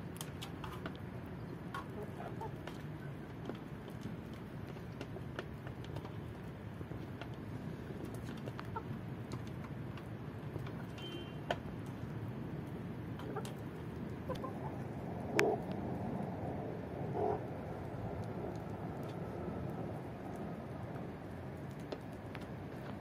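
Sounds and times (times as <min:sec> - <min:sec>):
chickens clucking: 0:01.7 - 0:02.8, 0:08.0 - 0:09.5, 0:13.2 - 0:15.6.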